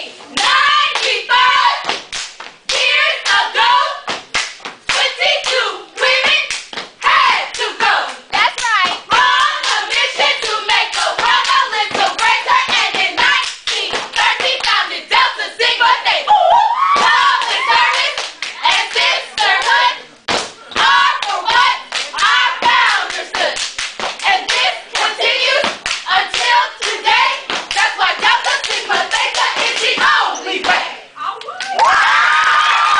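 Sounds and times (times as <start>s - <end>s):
clapping and body slapping: 1.8s - 3.4s, 4.1s - 5.6s, 6.5s - 7.0s, 17.0s - 24.7s, 25.6s - 30.1s
voices chanting: 2.7s - 4.1s, 5.0s - 23.6s, 24.2s - 31.2s.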